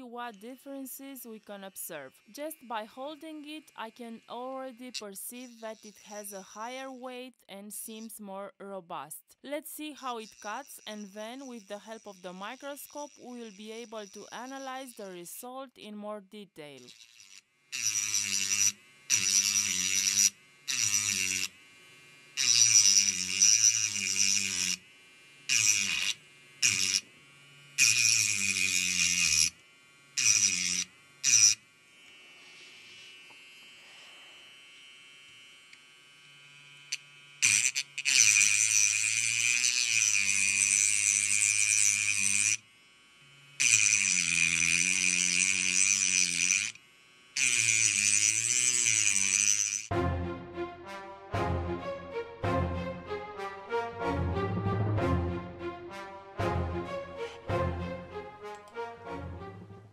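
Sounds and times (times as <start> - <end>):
rotary tool grinding metal: 0.0 - 7.2, 9.8 - 15.4, 16.7 - 49.9.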